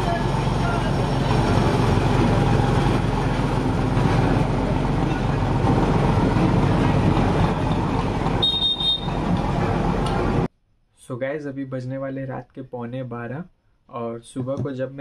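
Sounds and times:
road roller engine rumbling: 0.0s - 10.5s.

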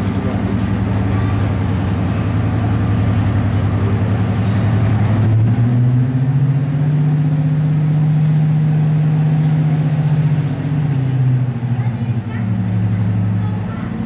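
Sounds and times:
diesel locomotive engine running: 0.0s - 14.0s.

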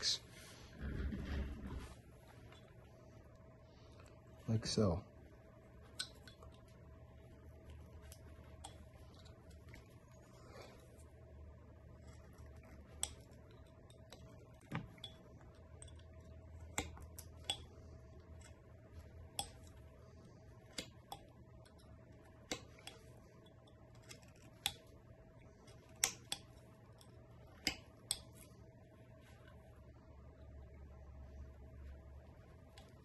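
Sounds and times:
faint steady hum: 0.0s - 33.0s
knife cutting wood clicks: 25.9s - 26.5s.

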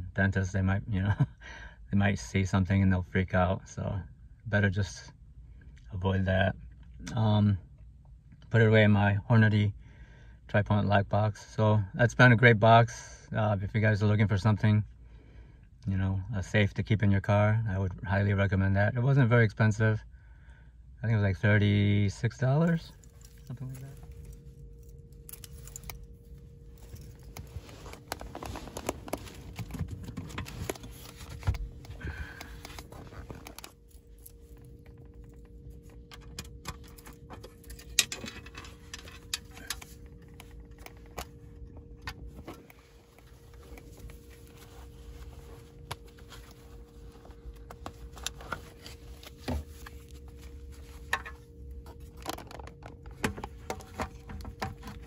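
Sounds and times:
steady low hum: 0.0s - 55.0s
keys jangling: 23.0s - 27.5s.

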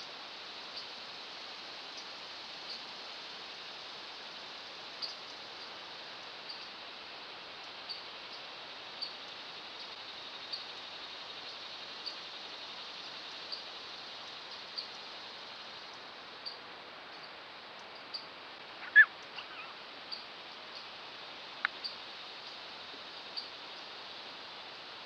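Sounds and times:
steady hiss: 0.0s - 25.0s
short high chirp call: 18.8s - 19.7s.

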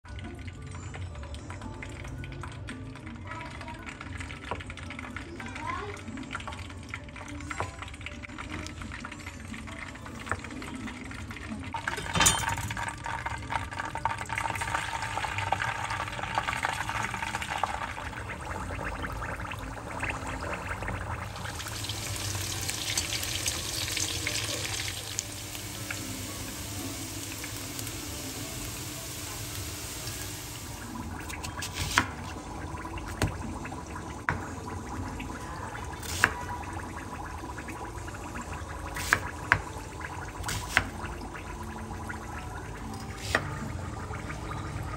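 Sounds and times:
running water splashing: 19.2s - 41.3s.

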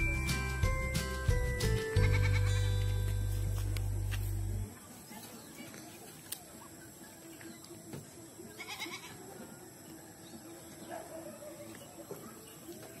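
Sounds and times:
farmyard animal calls: 1.8s - 2.9s, 6.0s - 13.0s.

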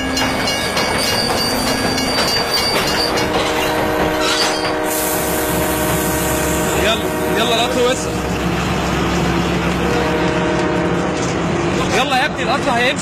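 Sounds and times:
wheels squealing on rails: 0.0s - 7.9s
diesel locomotive engine: 0.0s - 13.0s.

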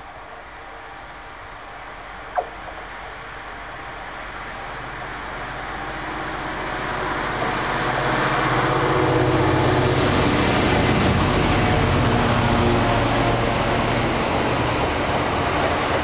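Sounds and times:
diesel locomotive engine passing: 4.1s - 16.0s.

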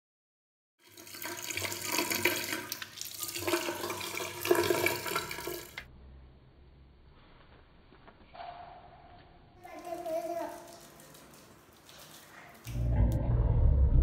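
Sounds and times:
tap water running into sink: 0.8s - 5.9s.

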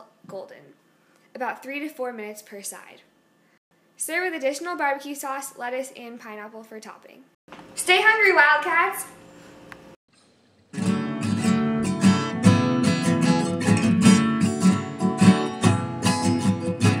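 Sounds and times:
strummed guitar music: 10.7s - 17.0s.

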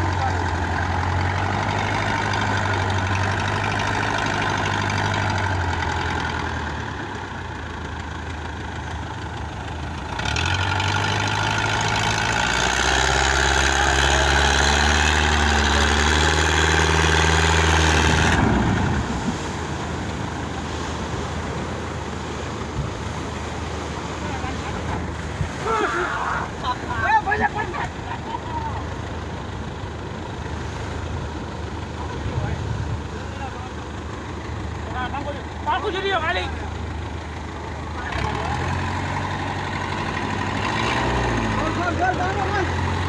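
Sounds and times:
boat engine running: 0.0s - 43.0s
wind: 0.0s - 43.0s
surf breaking: 10.0s - 29.0s.

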